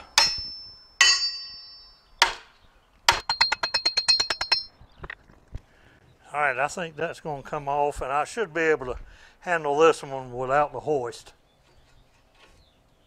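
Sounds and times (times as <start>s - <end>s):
hammer striking steel bolt: 0.0s - 2.5s, 3.1s - 4.7s.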